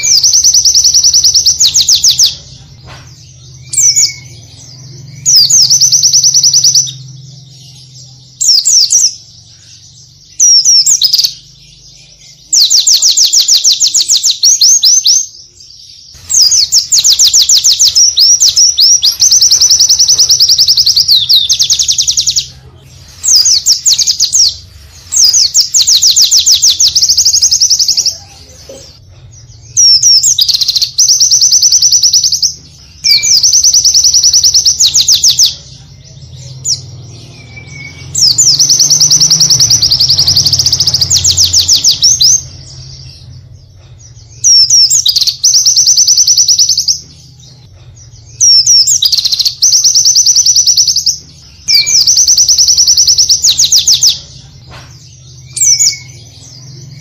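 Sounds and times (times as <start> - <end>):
bird trilling: 0.0 - 2.5, 3.5 - 7.6, 16.1 - 22.5, 29.8 - 35.6, 36.7 - 43.2, 48.3 - 54.3.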